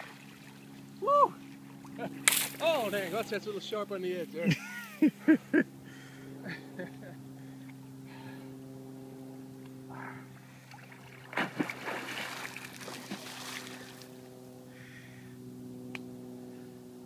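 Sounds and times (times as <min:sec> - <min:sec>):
water splashing and churning: 0:00.0 - 0:00.8, 0:10.6 - 0:14.1
steady low hum: 0:00.0 - 0:17.0.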